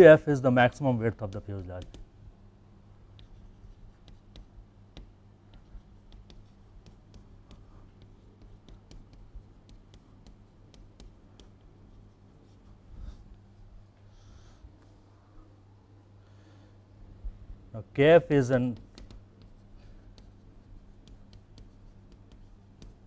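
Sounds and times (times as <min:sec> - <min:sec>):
steady low hum: 0:00.0 - 0:23.0
chalk tapping on blackboard: 0:01.3 - 0:02.0, 0:03.2 - 0:12.6, 0:18.6 - 0:23.0.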